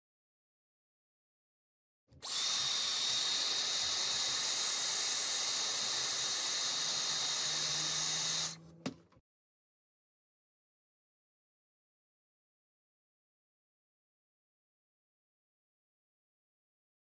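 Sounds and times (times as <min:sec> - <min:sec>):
hairdryer blowing: 0:02.2 - 0:08.6.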